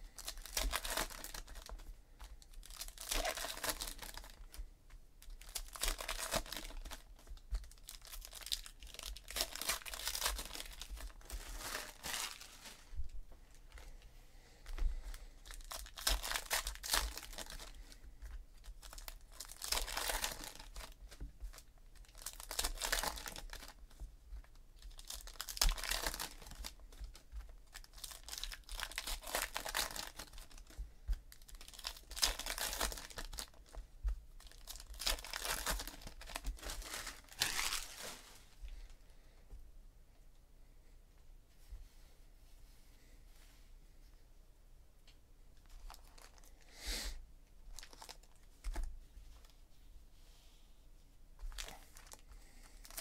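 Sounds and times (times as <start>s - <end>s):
card pack wrappers tearing: 0.2s - 1.8s, 2.6s - 4.6s, 5.2s - 12.6s, 15.4s - 17.8s, 18.8s - 23.8s, 24.8s - 33.8s, 34.4s - 38.2s
cards being flipped through: 35.2s - 38.3s.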